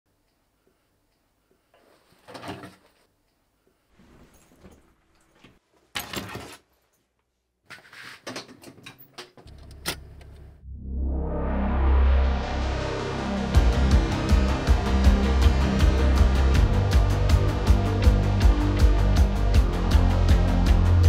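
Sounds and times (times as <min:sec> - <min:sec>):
handling and rustling: 0:03.9 - 0:09.2
low hum: 0:10.1 - 0:21.0.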